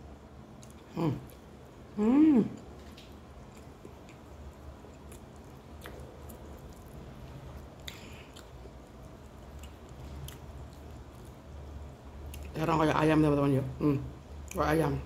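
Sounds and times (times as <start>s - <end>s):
person chewing food: 2.6s - 12.5s.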